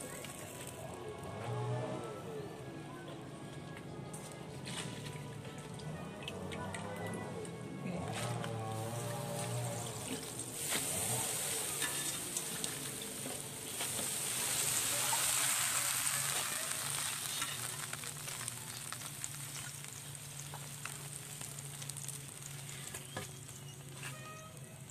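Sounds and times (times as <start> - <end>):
greens sizzling in a wok: 0.0 - 1.7, 8.2 - 24.9.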